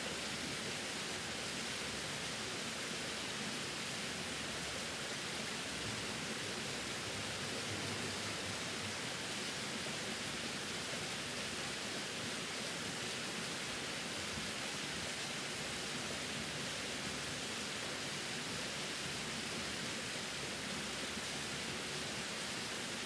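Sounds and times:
small waterfall rushing: 0.0s - 23.0s.

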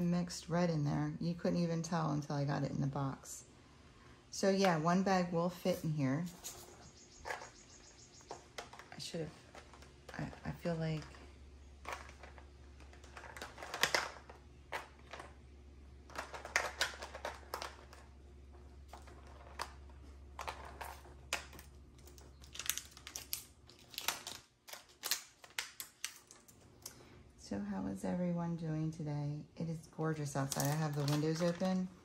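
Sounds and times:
low steady hum: 0.0s - 32.0s.

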